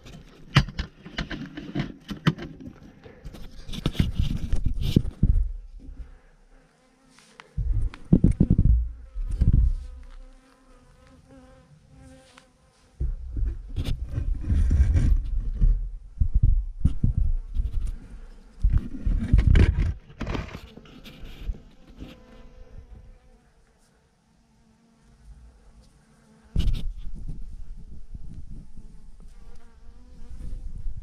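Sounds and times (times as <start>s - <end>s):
bee swarm buzzing: 2.9s - 15.0s.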